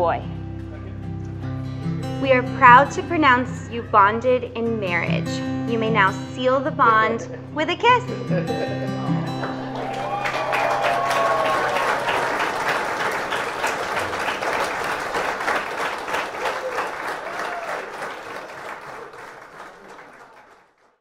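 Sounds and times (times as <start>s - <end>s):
crowd applauding: 8.8s - 21.0s.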